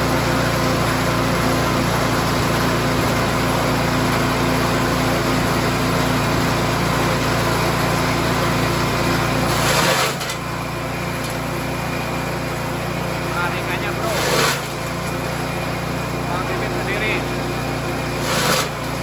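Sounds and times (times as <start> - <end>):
small engine chopper running: 0.0 - 19.0
stalks being chopped: 9.5 - 10.4, 14.2 - 14.8, 18.2 - 18.7.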